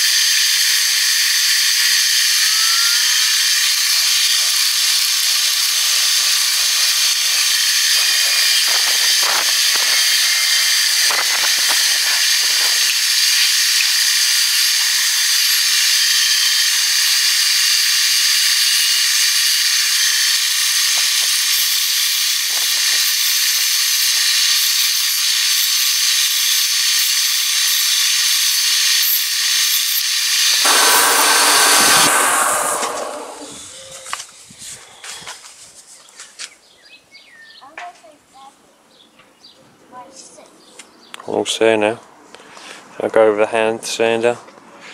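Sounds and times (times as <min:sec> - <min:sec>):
sander winding down: 0:00.0 - 0:23.5, 0:26.1 - 0:33.8
belt sander sanding wood: 0:30.3 - 0:33.6.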